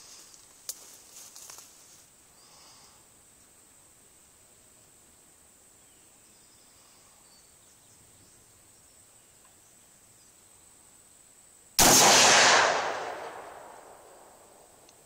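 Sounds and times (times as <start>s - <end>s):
faint outdoor background hiss: 0.0s - 15.0s
rifle shot echoing: 11.8s - 14.9s.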